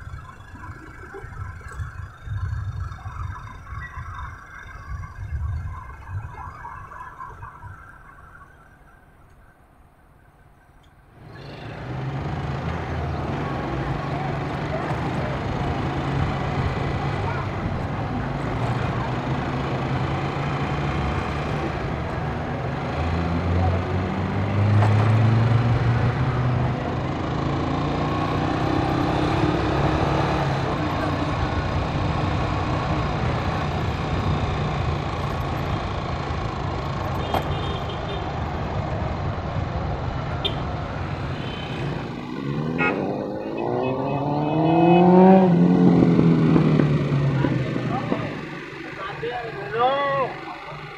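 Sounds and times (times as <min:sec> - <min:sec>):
car engines passing: 0:11.0 - 0:50.9
motorcycle engines passing: 0:11.1 - 0:50.9.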